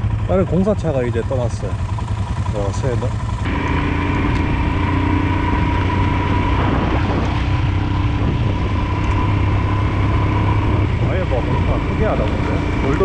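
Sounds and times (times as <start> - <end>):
motorcycle engine running: 0.0 - 13.0
wind rush: 4.4 - 13.0.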